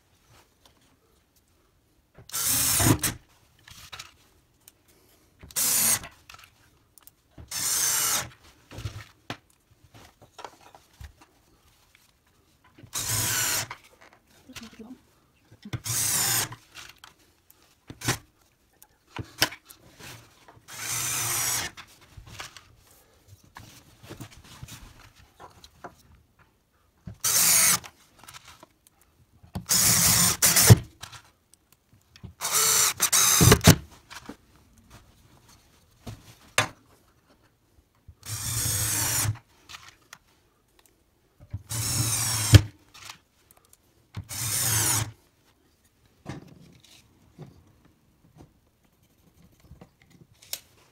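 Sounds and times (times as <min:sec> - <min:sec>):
cordless drill driving screws: 0:02.3 - 0:03.2, 0:05.5 - 0:06.1, 0:07.5 - 0:08.4, 0:12.9 - 0:13.8, 0:15.8 - 0:16.6, 0:20.7 - 0:21.8, 0:27.2 - 0:27.9, 0:29.6 - 0:30.8, 0:32.4 - 0:33.8, 0:38.2 - 0:39.4, 0:41.7 - 0:42.7, 0:44.2 - 0:45.2.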